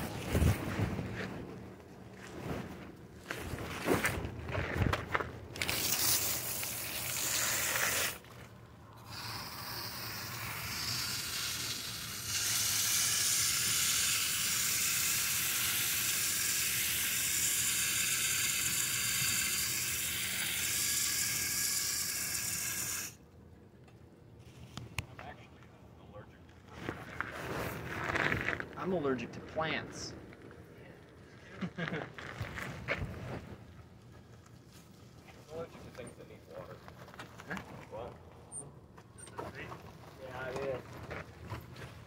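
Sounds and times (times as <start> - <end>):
cloth rubbing on microphone: 0.0 - 4.2, 26.7 - 28.8.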